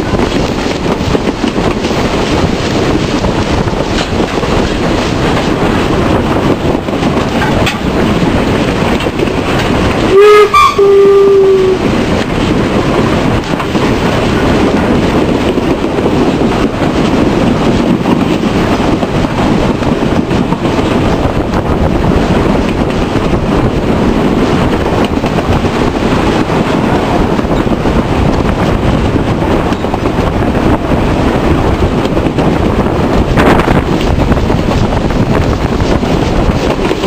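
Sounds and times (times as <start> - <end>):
steam locomotive running: 0.0 - 37.0
steam whistle blasts: 10.1 - 11.8.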